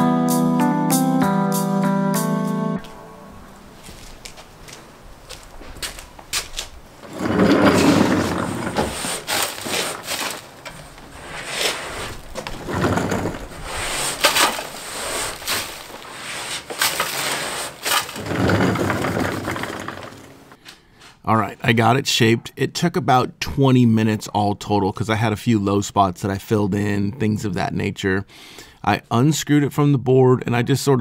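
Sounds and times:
plaster scraping and crunching: 6.4 - 20.5.

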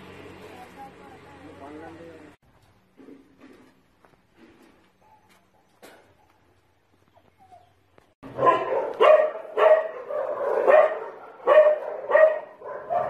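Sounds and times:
dog barking: 8.2 - 13.0.

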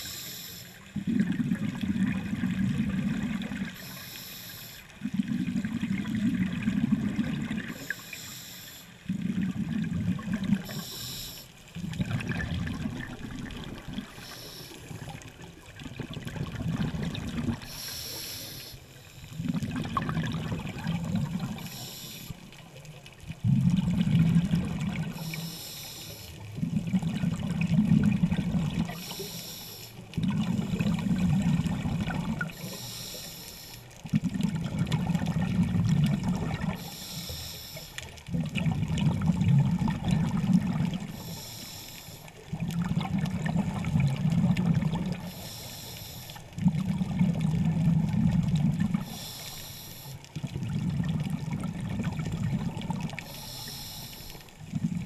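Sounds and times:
regulator inhale hiss: 0.0 - 0.9, 3.7 - 4.9, 7.7 - 9.0, 10.6 - 11.6, 14.1 - 15.2, 17.6 - 19.4, 21.3 - 22.6, 25.0 - 26.4, 28.8 - 30.1, 32.4 - 33.9, 36.7 - 38.2, 41.1 - 42.4, 45.2 - 46.6, 48.9 - 50.3, 53.1 - 54.6
exhaled air bubbling: 0.0 - 55.0.

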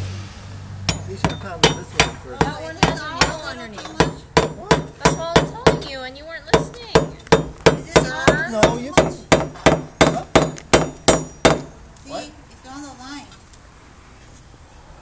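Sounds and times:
hammer striking nails with metallic ring: 0.9 - 11.8.

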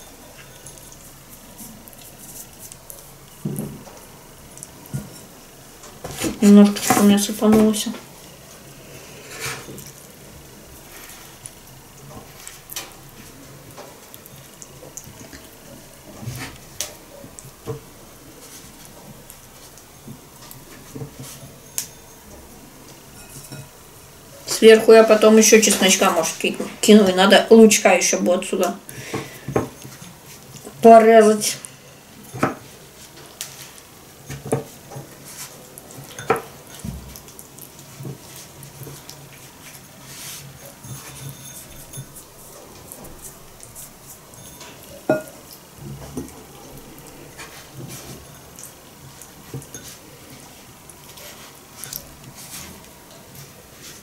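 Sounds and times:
squishing of raw chicken: 0.1 - 6.4, 31.6 - 54.0.

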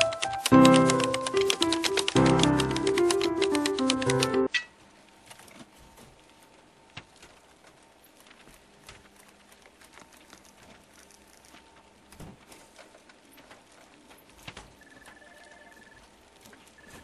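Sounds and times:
background music: 0.0 - 4.5.

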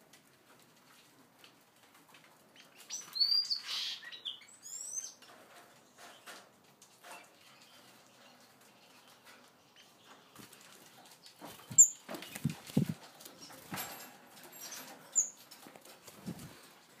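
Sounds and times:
finch chirps: 2.6 - 5.2, 11.2 - 12.5, 15.2 - 15.4
rustling: 5.3 - 17.0.

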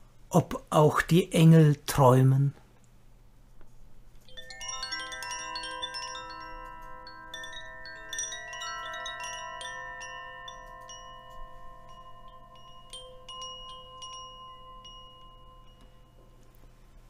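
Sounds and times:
metal chimes ringing: 4.2 - 17.0.

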